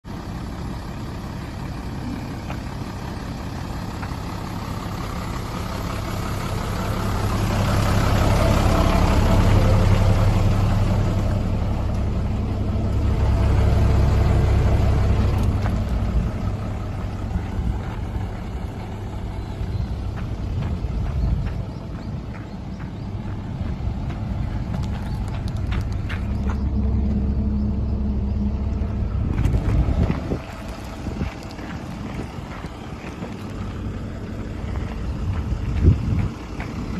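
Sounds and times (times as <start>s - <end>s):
diesel truck engine idling: 0.0s - 36.9s.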